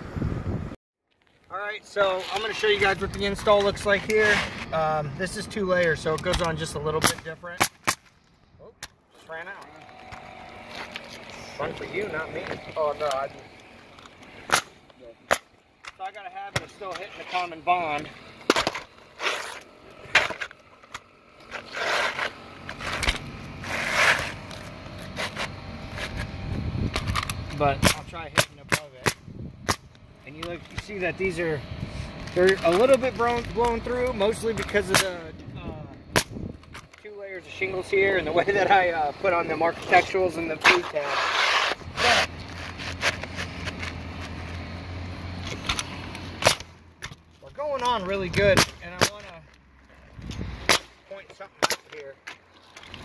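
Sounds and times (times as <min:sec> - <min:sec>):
shingles rustling and scraping: 0:01.1 - 0:07.4, 0:09.1 - 0:28.0, 0:31.9 - 0:35.2, 0:39.3 - 0:53.0
low motor hum: 0:09.4 - 0:16.0, 0:16.7 - 0:28.3, 0:41.7 - 0:47.4
shingle scraping on roof: 0:18.3 - 0:20.6, 0:21.4 - 0:26.3, 0:39.9 - 0:44.4
nail gun firing: 0:27.8 - 0:29.8
sharp snap: 0:27.8 - 0:30.8, 0:36.1 - 0:36.4, 0:50.6 - 0:51.0.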